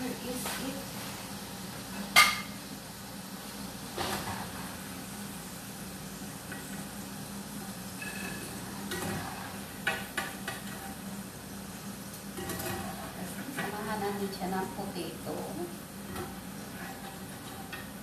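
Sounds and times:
food sizzling in a frying pan: 0.0 - 18.0.

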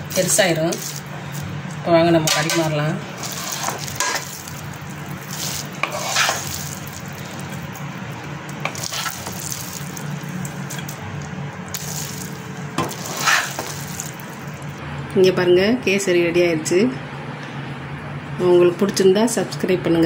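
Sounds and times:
steady low hum: 0.0 - 20.0
spatula scraping a pan: 3.2 - 4.4, 5.3 - 7.0, 8.6 - 9.4, 12.8 - 13.8.

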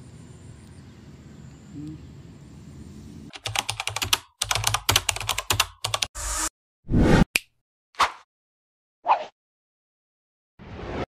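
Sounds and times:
faint outdoor background: 0.0 - 3.6
keyboard typing clicks: 3.4 - 6.1.

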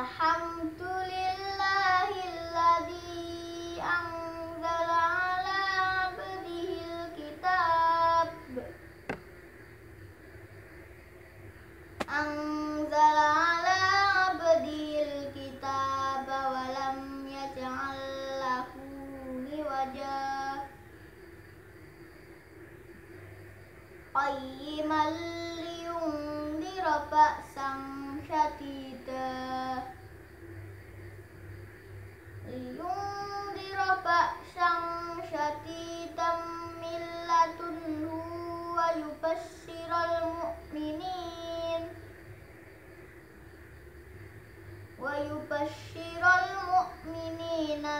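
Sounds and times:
boy chanting recitation: 0.0 - 9.2, 12.0 - 20.9, 24.1 - 30.1, 32.4 - 42.2, 44.9 - 47.9.

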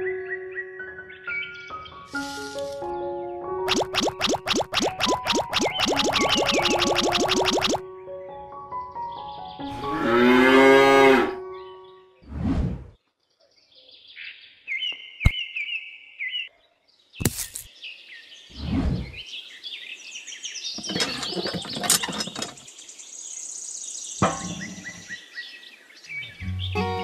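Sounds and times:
small birds chirping: 3.7 - 7.8, 13.0 - 27.0.

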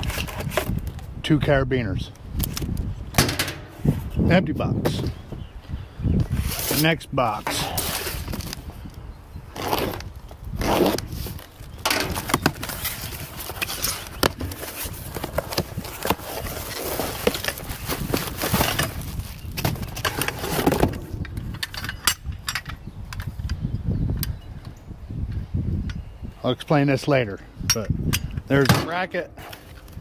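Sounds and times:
cardboard and packaging rustling: 0.0 - 1.0, 6.2 - 8.7, 9.6 - 21.2.

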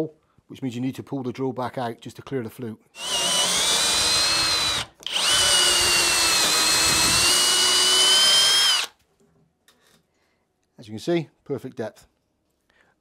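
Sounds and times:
power drill boring into wood: 3.0 - 9.0.

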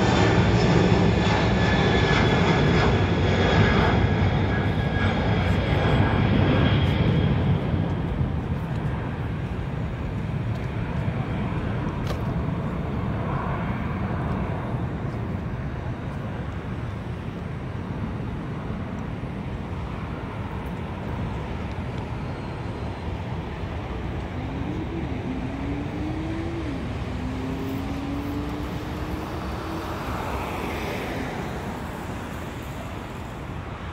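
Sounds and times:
jet engines low rumble: 0.0 - 33.9
engine note rising in steps: 24.4 - 30.0.

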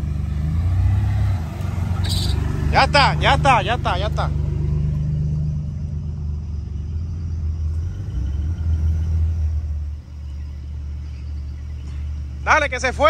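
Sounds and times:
off-road vehicle engine running: 0.0 - 13.0.

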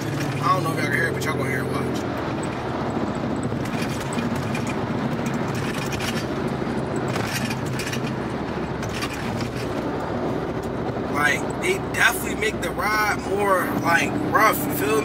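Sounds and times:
knocks and rattles: 0.0 - 0.8, 2.1 - 10.1
car engine humming: 0.0 - 15.0
tyre and road noise: 0.0 - 15.0.

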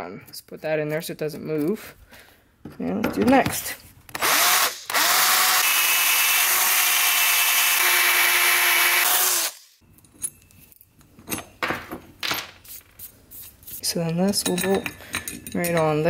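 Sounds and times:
cordless drill whining: 4.1 - 9.7.

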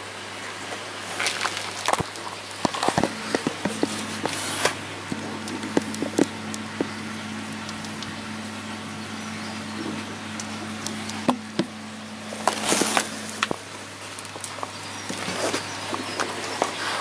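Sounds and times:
steady low hum: 0.0 - 17.0
handling clicks and knocks: 1.2 - 7.0.

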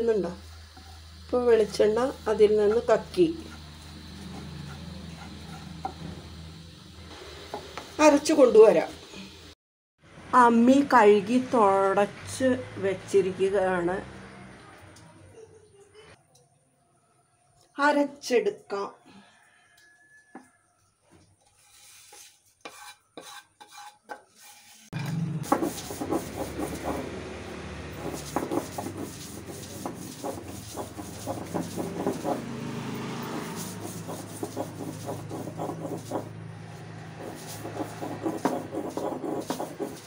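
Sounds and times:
grinding stone scraping: 27.9 - 36.4, 37.0 - 40.0.

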